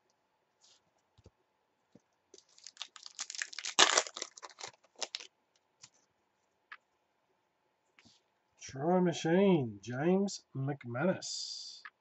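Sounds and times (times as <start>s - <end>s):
wrapper crackling: 2.4s - 5.3s.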